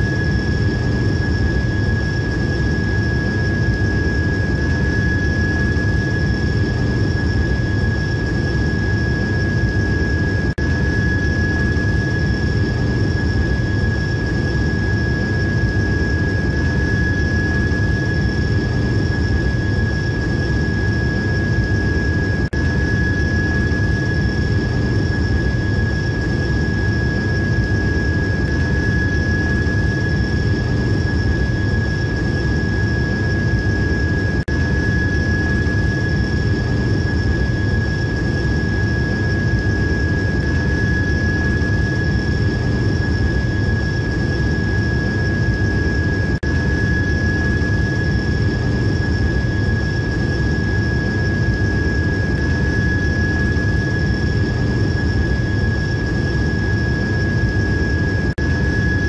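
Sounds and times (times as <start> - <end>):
high-pitched whine: 0.0 - 59.0.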